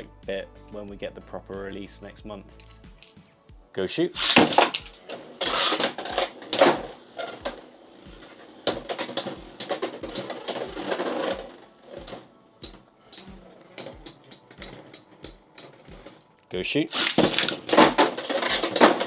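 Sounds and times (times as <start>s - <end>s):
spinning tops clashing: 4.2s - 16.2s, 16.9s - 19.0s.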